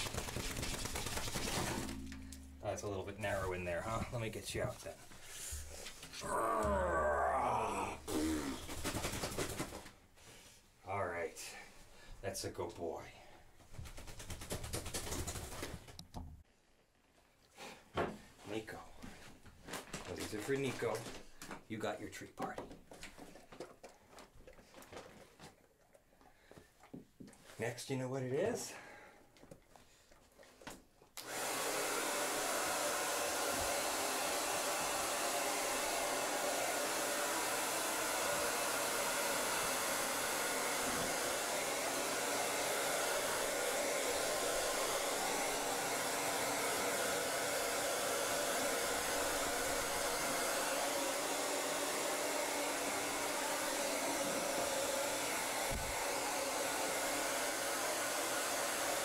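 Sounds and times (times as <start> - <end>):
hair dryer blowing: 0.0 - 4.2, 31.2 - 59.0.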